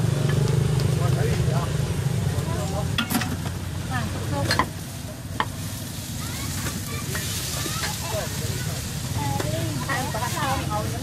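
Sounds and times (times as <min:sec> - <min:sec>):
kitchenware clacks: 0:02.9 - 0:03.6, 0:04.4 - 0:04.8.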